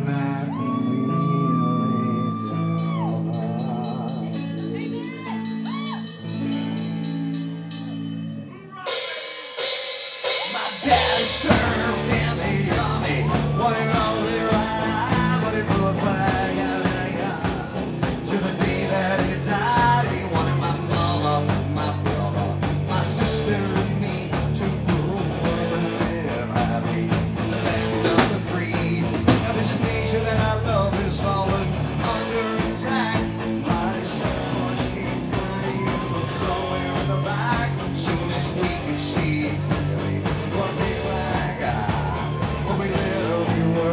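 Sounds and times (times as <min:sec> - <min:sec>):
person singing: 0:00.0 - 0:09.4, 0:10.2 - 0:43.9
bass guitar: 0:00.0 - 0:43.9
distorted electric guitar: 0:00.0 - 0:43.9
drum kit: 0:02.2 - 0:43.9.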